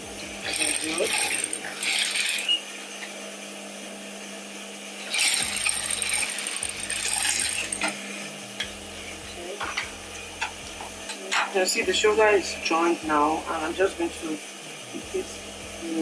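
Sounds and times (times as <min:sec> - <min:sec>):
sewing machine stitching: 0:00.4 - 0:02.6, 0:05.1 - 0:07.9.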